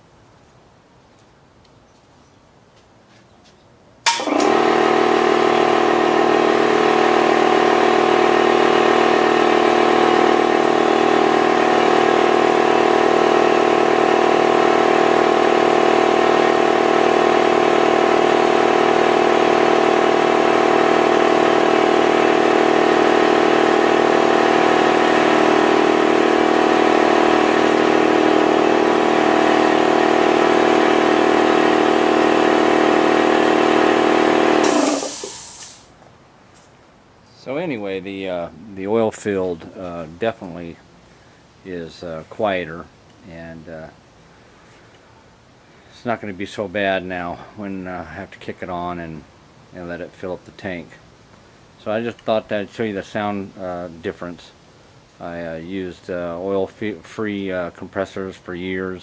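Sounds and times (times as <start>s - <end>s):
air compressor humming: 4.1s - 36.0s.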